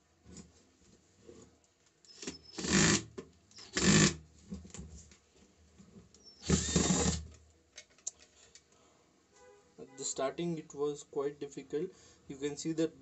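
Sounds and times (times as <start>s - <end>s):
cordless drill running: 2.1s - 4.2s, 6.4s - 7.2s.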